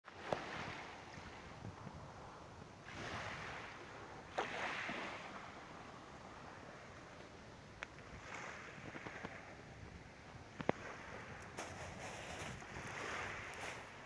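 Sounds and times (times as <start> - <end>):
waves washing over pebble shore: 2.8 - 5.6, 10.6 - 14.0.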